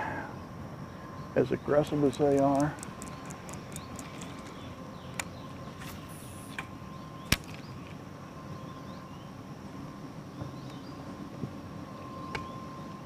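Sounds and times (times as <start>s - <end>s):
faint steady hum: 0.0s - 13.0s
faint bird chirps: 2.8s - 9.4s, 10.2s - 11.2s, 11.8s - 13.0s.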